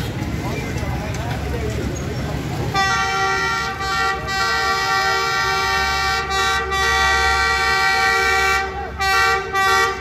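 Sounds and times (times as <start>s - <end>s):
locomotive air horn blast: 2.7s - 10.0s.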